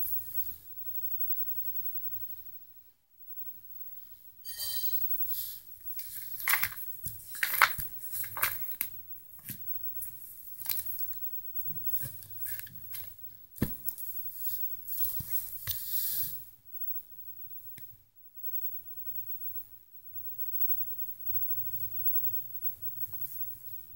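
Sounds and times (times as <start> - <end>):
plastic sheets crinkling: 5.8 - 15.9.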